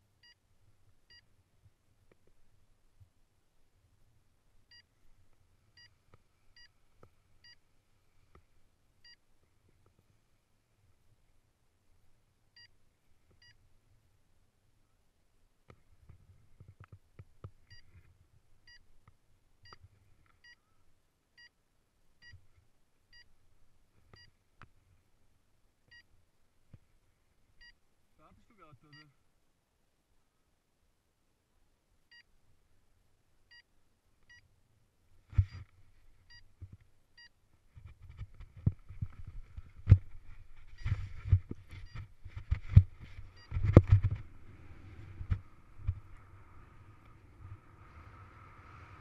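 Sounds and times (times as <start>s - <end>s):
paraglider rustling and thumping: 37.7s - 46.4s.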